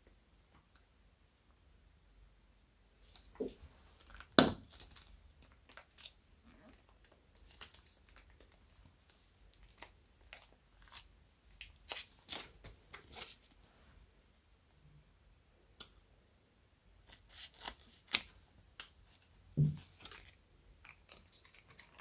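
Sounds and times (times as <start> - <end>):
plastic bag of slime crackling: 4.0 - 13.4, 19.9 - 22.0.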